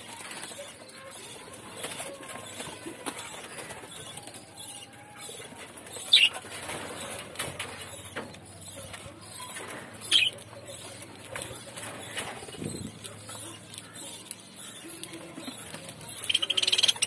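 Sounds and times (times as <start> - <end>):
beaks nibbling leaves: 0.0 - 17.0
budgerigar chirps: 16.2 - 17.0.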